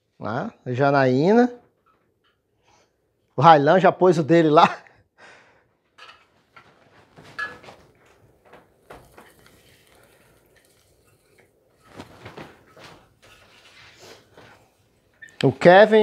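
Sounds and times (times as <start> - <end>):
faint rustling: 5.9 - 15.2.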